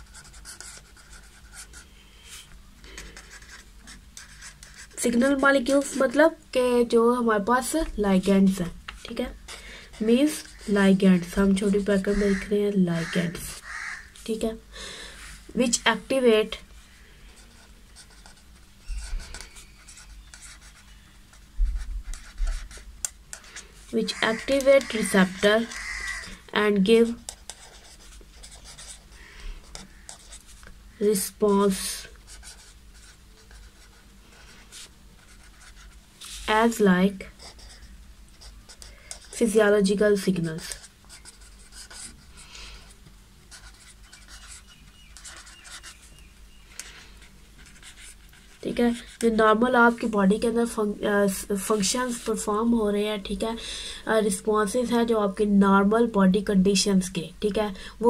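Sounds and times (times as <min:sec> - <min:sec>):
marker scratching on paper: 0:00.0 - 0:06.2, 0:08.6 - 0:14.4, 0:17.3 - 0:42.2, 0:43.5 - 0:46.2, 0:47.6 - 0:50.1.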